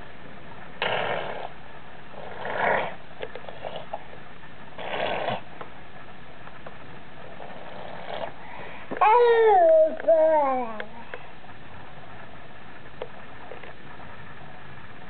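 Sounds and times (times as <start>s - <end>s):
breathy huffs: 8.3s - 9.0s.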